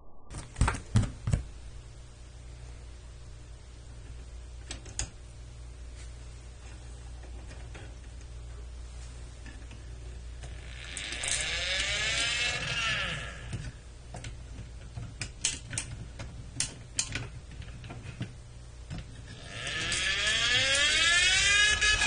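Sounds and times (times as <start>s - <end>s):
toy motor whirring: 10.5s - 13.6s, 19.3s - 22.0s.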